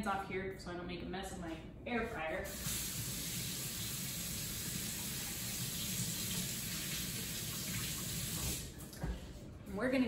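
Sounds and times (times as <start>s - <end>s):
faucet running: 2.5s - 8.8s.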